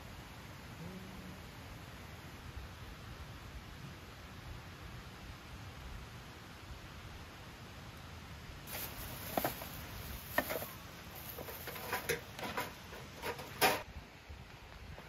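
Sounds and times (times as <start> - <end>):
plastic bags crinkling: 8.7 - 13.8.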